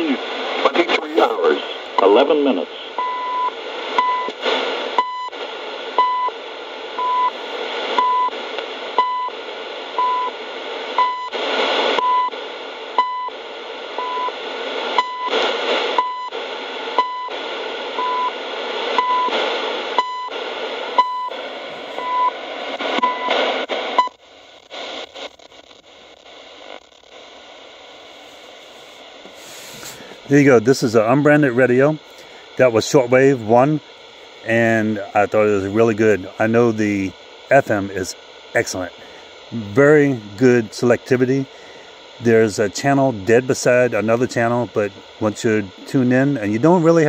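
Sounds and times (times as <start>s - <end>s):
radio time-signal beeps: 0.0s - 6.4s, 7.0s - 8.4s, 9.0s - 9.4s, 10.0s - 10.4s, 11.0s - 12.4s, 13.0s - 13.4s, 14.0s - 16.4s, 17.0s - 18.4s, 19.0s - 19.4s, 20.0s - 24.2s, 34.4s - 47.0s
radio static hiss: 0.0s - 47.0s.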